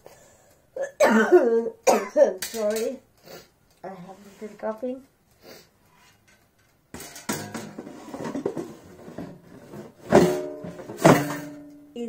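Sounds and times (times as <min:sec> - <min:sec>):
air fryer basket knocking and rattling: 0:07.0 - 0:08.7.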